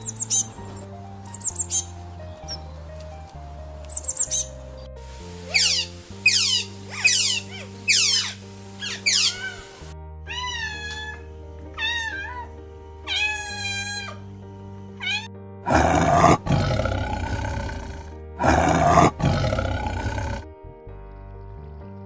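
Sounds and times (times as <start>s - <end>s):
background music: 0.0s - 22.0s
sea otter squealing: 5.5s - 9.7s
tiger roaring: 15.6s - 20.5s.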